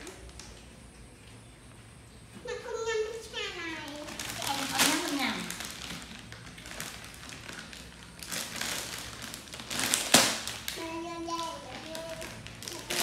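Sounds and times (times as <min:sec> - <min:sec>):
plastic bag crinkling: 0:03.6 - 0:13.0.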